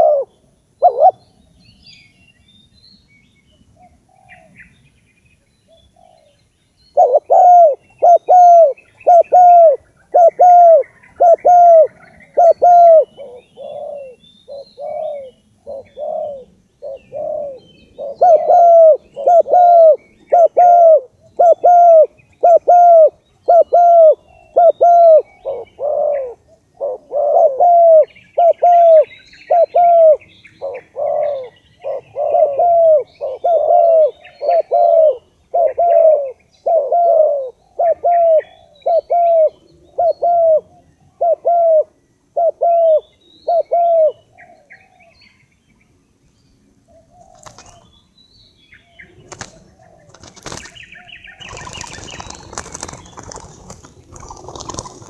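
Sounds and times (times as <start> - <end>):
bird-lure cooing call: 0.0 - 1.2, 6.0 - 45.3.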